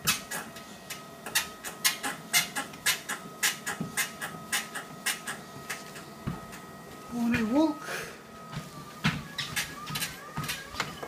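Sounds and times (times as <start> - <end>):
treadmill squeaking under footsteps: 0.0 - 11.0.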